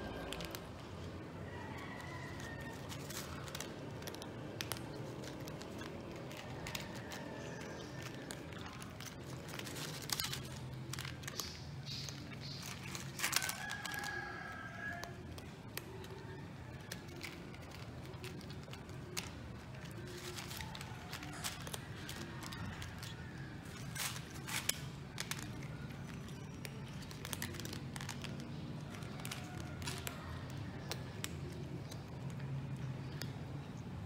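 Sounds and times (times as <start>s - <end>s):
cats crunching dry kibble: 0.0s - 34.0s
rooster crowing: 1.4s - 3.2s, 13.2s - 15.2s.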